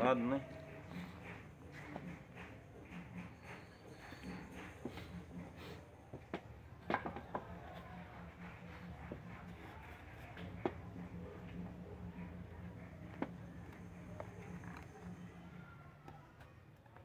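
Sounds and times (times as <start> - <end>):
wooden boards knocking: 6.3 - 8.0.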